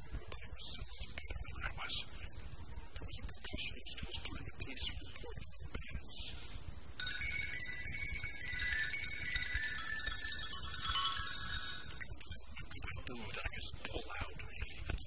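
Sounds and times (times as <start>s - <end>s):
high ringing chimes: 7.0s - 12.9s.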